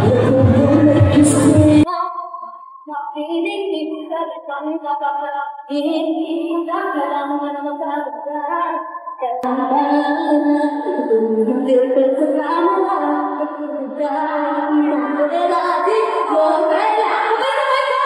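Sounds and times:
loud music: 0.0s - 1.9s
crowd noise: 0.0s - 2.4s
woman singing alone: 0.0s - 18.0s.

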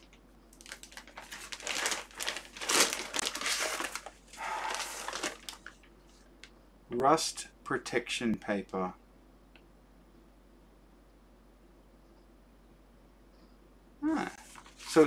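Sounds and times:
packing paper crinkling: 0.0s - 6.3s, 14.4s - 15.0s.

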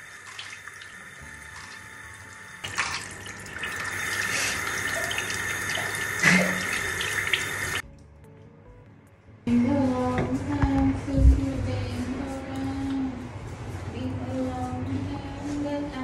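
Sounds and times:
water splashing into sink: 0.0s - 7.8s.

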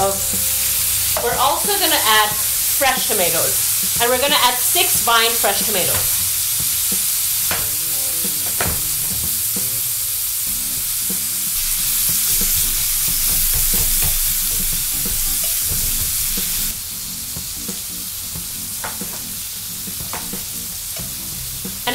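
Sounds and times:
sauce sizzling in frying pan: 0.0s - 21.9s
spatula knocking and scraping pan: 18.5s - 19.4s, 20.0s - 21.2s.

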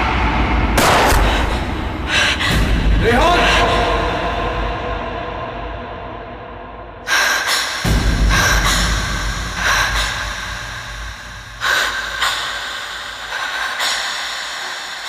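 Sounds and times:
woman gasping and breathing hard: 7.0s - 15.0s.

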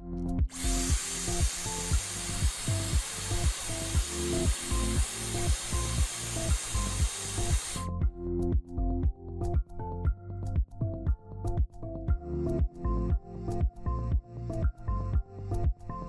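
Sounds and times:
background music with beat: 0.0s - 16.0s
hair dryer blowing: 0.5s - 7.9s.

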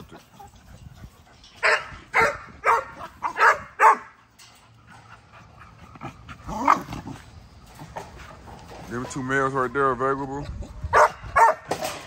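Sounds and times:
dogs barking: 0.0s - 4.3s, 10.9s - 11.9s.

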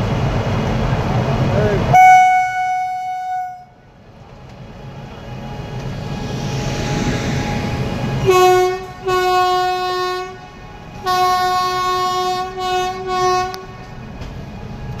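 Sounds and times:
locomotive air horn blasts: 1.9s - 3.8s, 8.3s - 13.9s.

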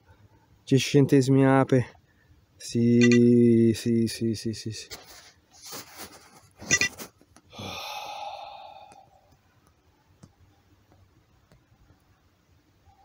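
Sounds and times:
man sighing: 7.5s - 9.1s.

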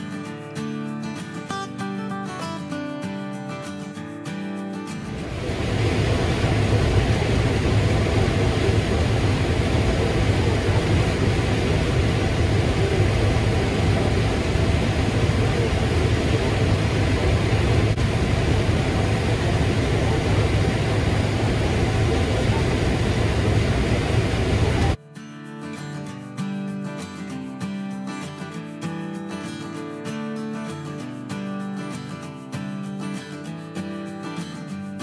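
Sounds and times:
combine harvester drone: 5.0s - 25.0s
strong low hum: 5.1s - 25.0s.

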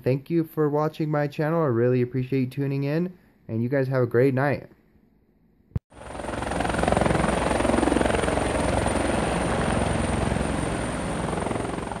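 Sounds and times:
helicopter rotor beating: 5.9s - 12.0s.

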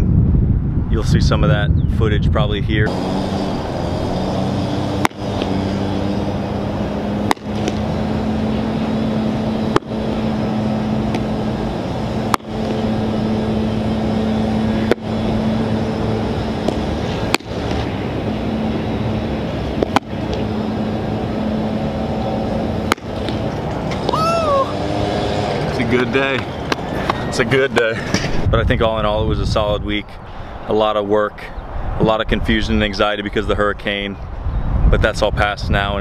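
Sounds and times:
low machine hum: 2.8s - 28.2s.

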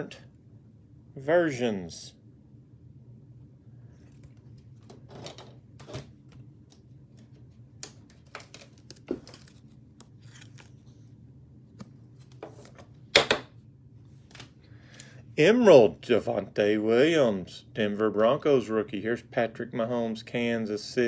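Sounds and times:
faint steady hum: 0.0s - 21.0s
card holders clicking and rustling: 7.2s - 10.7s.

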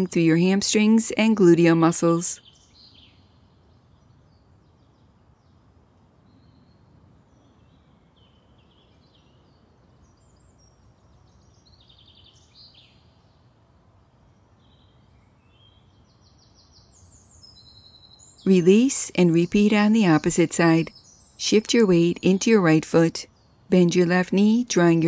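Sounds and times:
outdoor background hiss: 0.0s - 25.0s
birds chirping and singing: 6.2s - 13.5s, 14.5s - 25.0s.

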